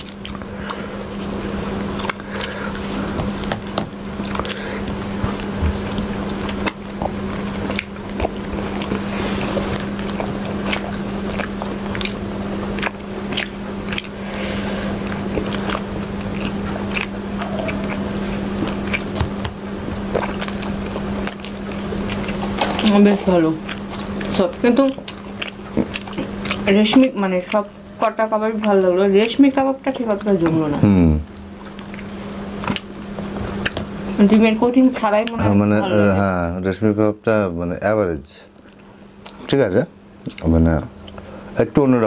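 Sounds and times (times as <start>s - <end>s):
people chewing food: 0.0s - 37.0s, 38.5s - 42.0s
wet mouth clicks and smacks: 9.7s - 14.2s, 24.9s - 26.7s.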